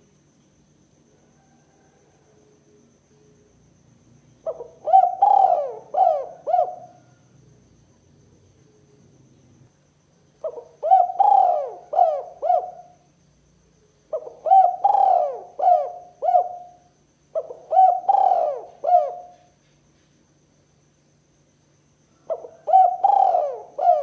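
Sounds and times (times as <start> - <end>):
dove cooing: 4.4 - 7.6, 10.4 - 13.0, 14.1 - 19.5, 22.2 - 24.0.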